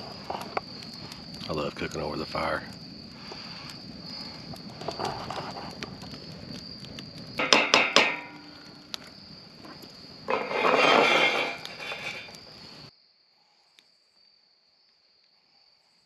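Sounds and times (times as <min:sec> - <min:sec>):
crickets chirping: 0:00.0 - 0:16.0
cookware clanking on a grill grate: 0:07.4 - 0:08.8, 0:10.3 - 0:12.3.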